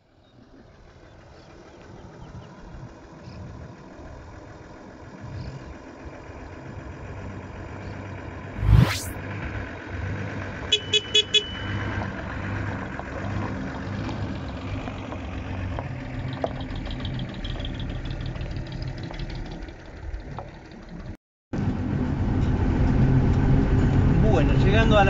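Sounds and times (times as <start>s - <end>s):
truck diesel engine running: 0.5s - 8.5s, 9.4s - 25.0s
truck horn toots: 10.7s - 12.0s.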